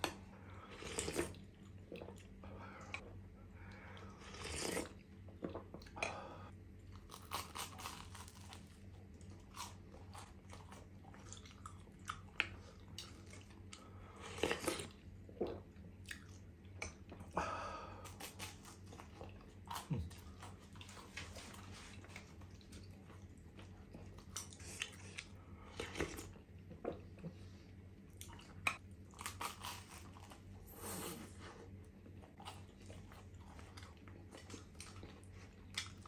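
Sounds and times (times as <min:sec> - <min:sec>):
slurping soup from a spoon: 0:00.7 - 0:01.4, 0:04.1 - 0:05.0
chewing toasted bread: 0:06.8 - 0:17.4, 0:18.0 - 0:27.4, 0:28.1 - 0:30.6, 0:31.8 - 0:36.0.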